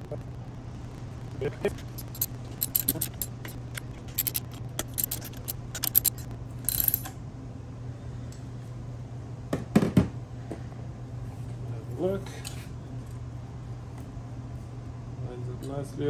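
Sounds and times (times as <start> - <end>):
steady low hum: 0.0 - 9.5
socket ratchet clicking: 1.7 - 7.1.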